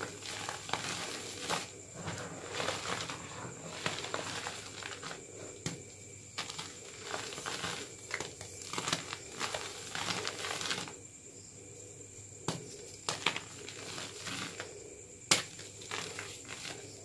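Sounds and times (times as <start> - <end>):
chalk crunching in hands: 6.4 - 11.0.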